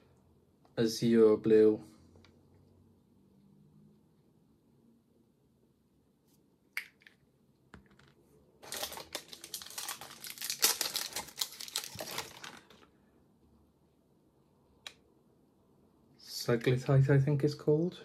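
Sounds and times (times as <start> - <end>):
plastic wrapping crinkling: 8.6 - 12.9.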